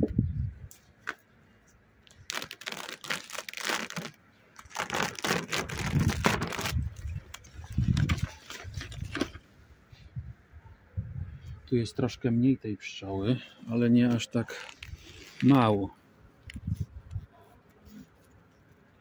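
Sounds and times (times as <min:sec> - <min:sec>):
plastic foil crinkling: 0:02.1 - 0:09.4, 0:14.4 - 0:15.6.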